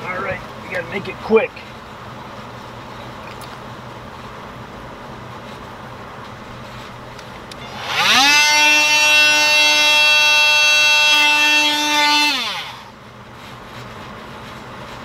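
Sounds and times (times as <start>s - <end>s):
electric tool motor spinning: 7.6s - 13.0s.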